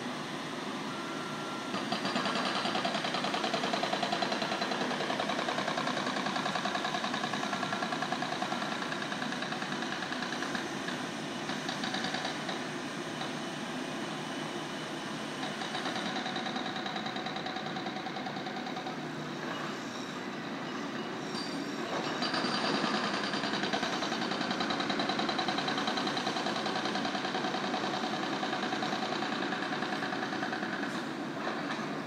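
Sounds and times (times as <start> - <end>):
jackhammer hammering: 1.7 - 12.6, 22.2 - 31.7.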